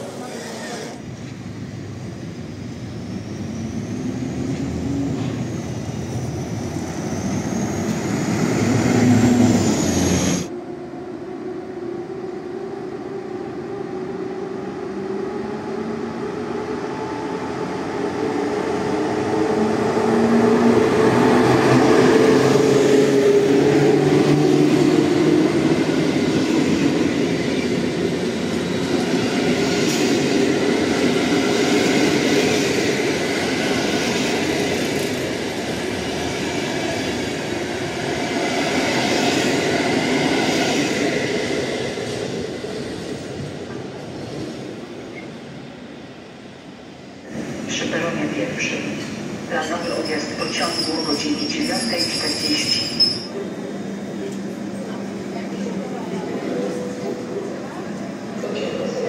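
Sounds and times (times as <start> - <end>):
train wheels on rails: 3.6 - 10.5.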